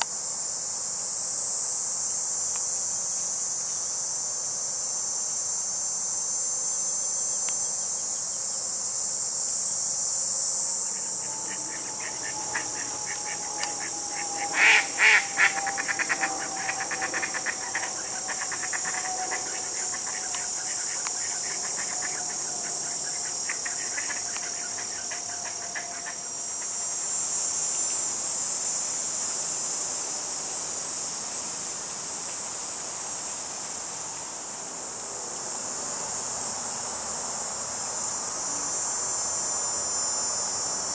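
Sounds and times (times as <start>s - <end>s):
insects chirping: 0.0s - 40.9s
faint tone sliding downward: 10.8s - 26.2s.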